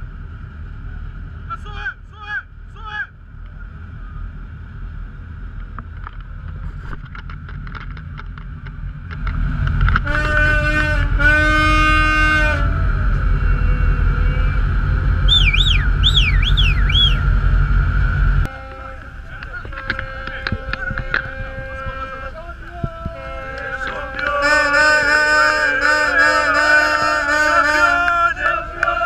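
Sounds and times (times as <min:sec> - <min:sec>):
ship engine rumble: 0:00.0 - 0:29.0
boat horn blasts: 0:10.0 - 0:14.7, 0:18.4 - 0:28.6
rising and falling whistles: 0:13.3 - 0:17.3
wind noise: 0:19.1 - 0:24.2.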